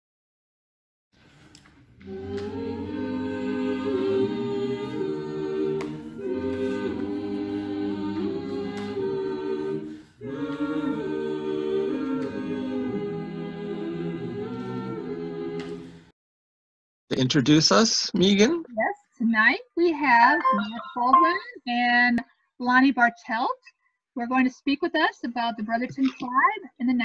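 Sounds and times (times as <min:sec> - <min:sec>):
choir singing unaccompanied: 0:02.0 - 0:16.1.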